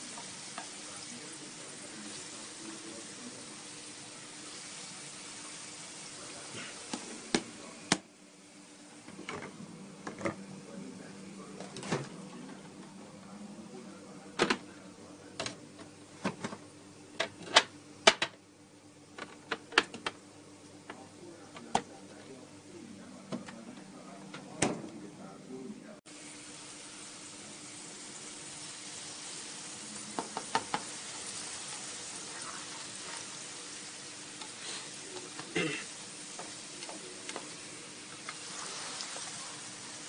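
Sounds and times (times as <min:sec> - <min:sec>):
onions sizzling in oil: 0:00.0 - 0:08.0, 0:26.1 - 0:40.0
oil popping and crackling: 0:30.1 - 0:33.4.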